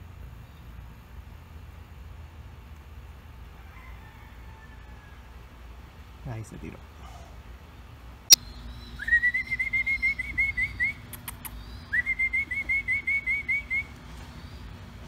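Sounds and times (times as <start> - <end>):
songbird singing: 0.3 - 0.8, 8.3 - 15.0.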